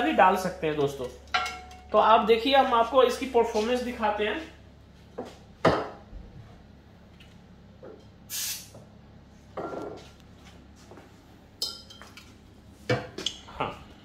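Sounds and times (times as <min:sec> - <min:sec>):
aerosol spray can hiss: 0:08.3 - 0:08.8.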